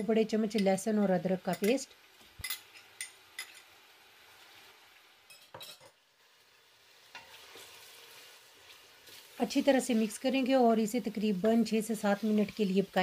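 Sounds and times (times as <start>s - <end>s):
metal spoon clinking glass bowl: 1.5s - 1.8s, 2.4s - 3.7s, 5.3s - 5.9s.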